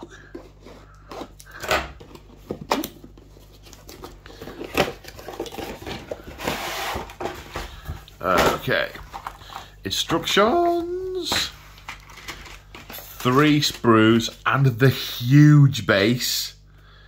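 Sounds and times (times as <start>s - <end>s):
cardboard rustling: 2.0s - 14.5s.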